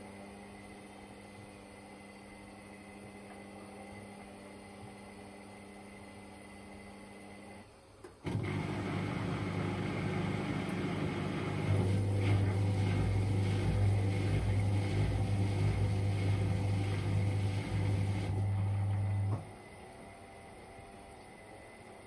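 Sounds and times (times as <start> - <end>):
washer-dryer drum motor humming: 8.2 - 22.0.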